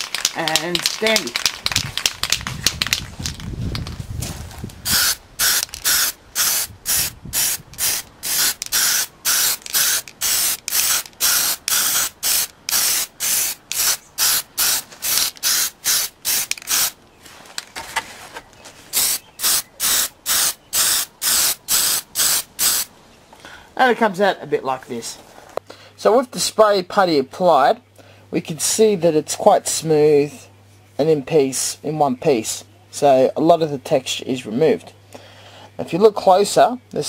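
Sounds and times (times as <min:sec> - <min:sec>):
aerosol can hissing in bursts: 0:04.8 - 0:17.0, 0:18.9 - 0:22.9.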